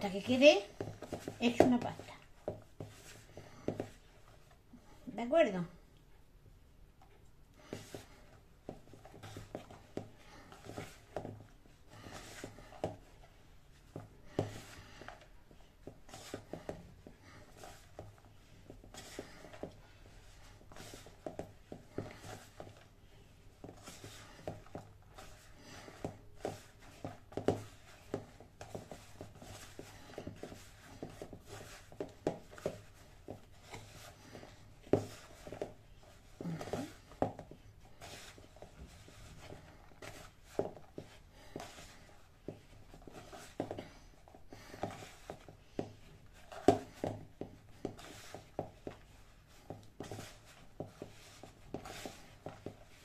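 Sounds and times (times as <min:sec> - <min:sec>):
hands kneading dough: 0:00.0 - 0:53.0.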